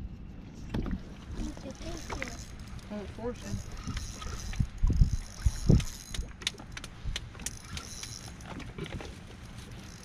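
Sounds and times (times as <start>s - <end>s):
wind buffeting microphone: 0.0s - 7.9s.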